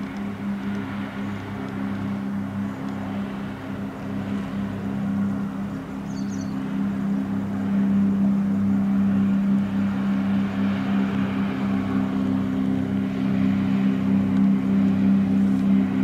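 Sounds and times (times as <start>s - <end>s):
boat engine drone: 0.0s - 16.0s
rushing wake and spray: 0.0s - 16.0s.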